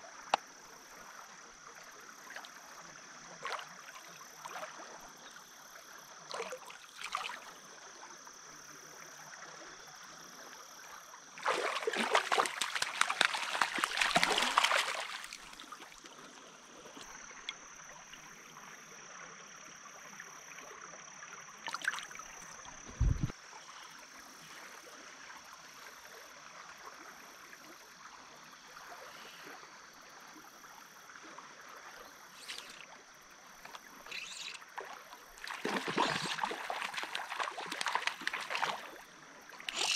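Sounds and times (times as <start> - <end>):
small stream flowing: 0.0 - 39.9
loud splashing: 11.4 - 15.4, 35.4 - 39.0
knocks and splashes: 11.4 - 15.6, 34.8 - 39.0
low thump: 22.9 - 23.3.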